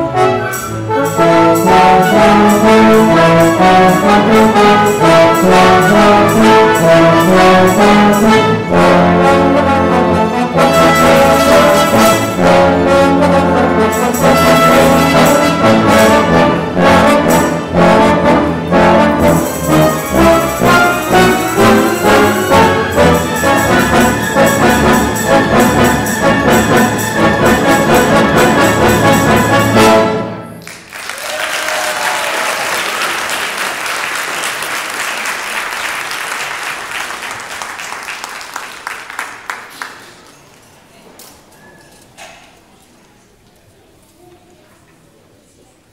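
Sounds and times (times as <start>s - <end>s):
orchestra with brass playing: 0.0s - 30.7s
audience applause: 30.6s - 40.4s.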